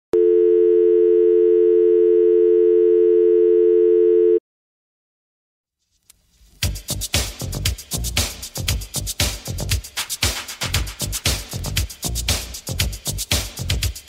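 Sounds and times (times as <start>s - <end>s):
loud dance music: 6.7s - 14.0s.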